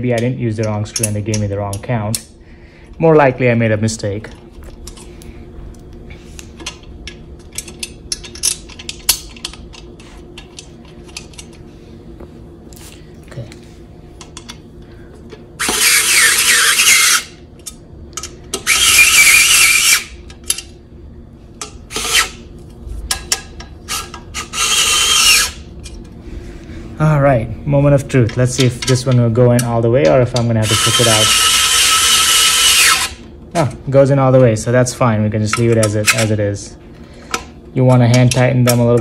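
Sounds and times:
electric screwdriver whirring: 24.4s - 25.6s, 30.6s - 33.2s.

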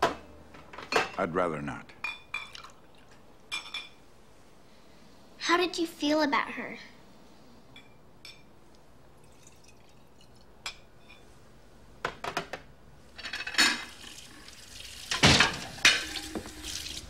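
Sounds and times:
liquor pouring into glass: 9.2s - 10.5s.

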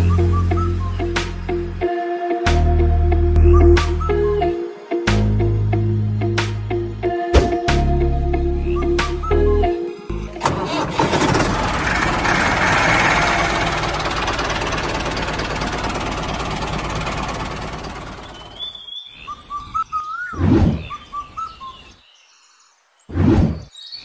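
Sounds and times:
loud thump: 7.3s - 7.8s
bird chirps: 17.9s - 24.0s.

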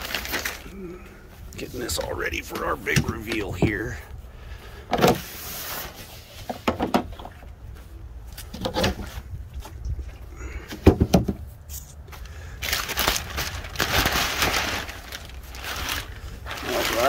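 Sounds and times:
plastic sheeting crinkling: 0.0s - 4.0s, 12.5s - 17.0s
knocks and thumps: 10.7s - 11.5s.

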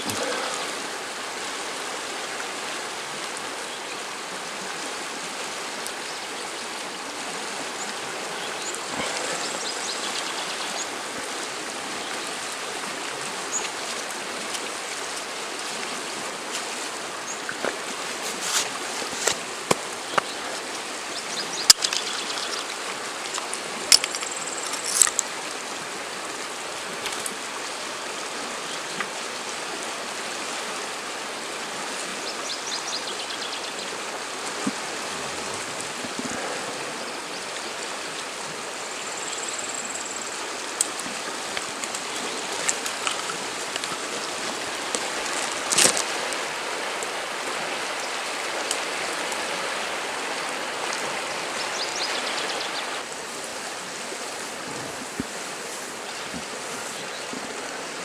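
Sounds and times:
river water rushing: 0.0s - 58.0s
small splashes and clicks: 13.5s - 15.9s, 21.6s - 25.3s, 27.0s - 27.4s, 40.8s - 47.1s.

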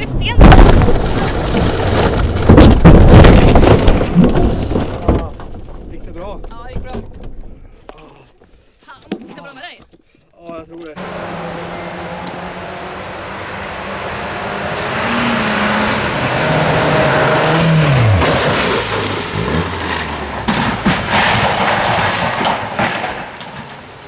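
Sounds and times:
gravel spattering: 0.4s - 6.4s, 15.6s - 24.0s
rally car engine revving: 11.0s - 22.8s.

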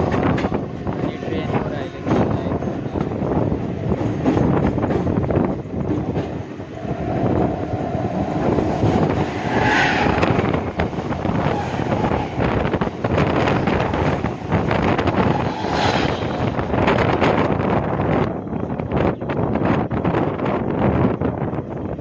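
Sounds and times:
train wheels clattering on rails: 0.0s - 6.6s
train passing alongside: 0.0s - 22.0s
wind buffeting microphone: 0.0s - 22.0s.

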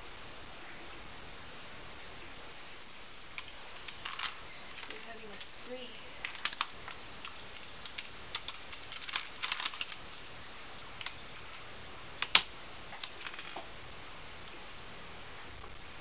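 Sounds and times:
computer keyboard keys clacking: 6.3s - 10.0s.

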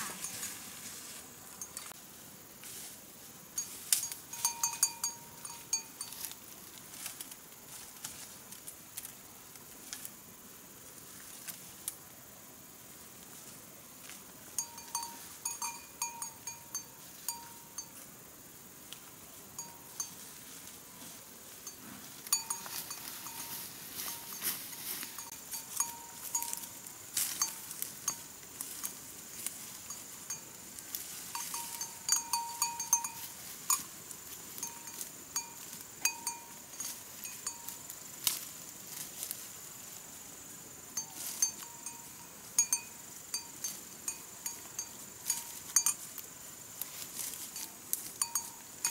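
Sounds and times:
livestock bell clinking: 1.5s - 1.9s, 3.6s - 6.4s, 14.6s - 18.0s, 19.6s - 20.3s, 21.6s - 28.4s, 29.8s - 34.0s, 34.6s - 37.9s, 41.0s - 46.0s, 47.5s - 48.9s.

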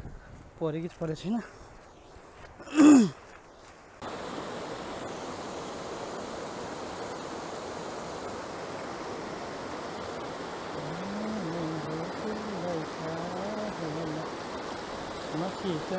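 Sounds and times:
river rapids rushing: 4.0s - 15.9s.

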